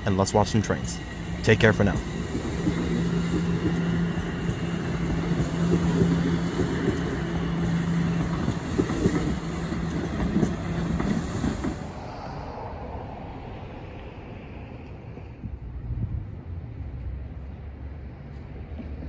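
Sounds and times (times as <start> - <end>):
steel wheels rumbling on rail: 0.0 - 17.2
low hum: 11.7 - 17.7.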